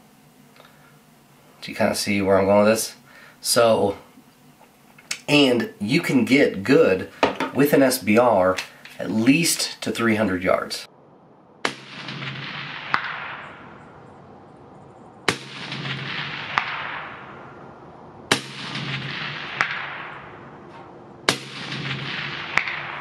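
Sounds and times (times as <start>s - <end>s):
rifle shots echoing: 11.6s - 14.0s, 15.3s - 17.7s, 18.3s - 23.0s.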